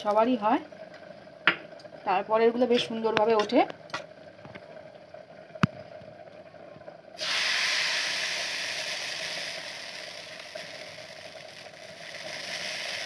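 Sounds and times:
batter sizzling in hot mould: 7.2s - 13.0s.

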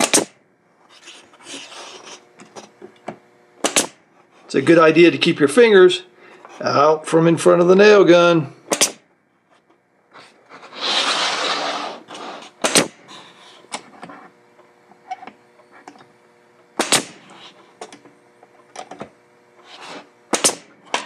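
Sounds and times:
nail gun shots: 0.0s - 0.4s, 3.6s - 4.0s, 8.7s - 9.1s, 12.6s - 13.0s, 16.8s - 17.3s, 20.3s - 21.0s
rushing scraping noise: 10.2s - 12.6s.

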